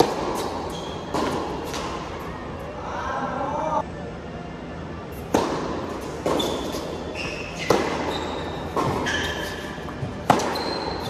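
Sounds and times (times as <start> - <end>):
tennis ball hit by racket: 0.0 - 2.0, 5.2 - 7.0, 7.6 - 11.0
shoes squeaking on court: 0.1 - 2.0, 6.0 - 11.0.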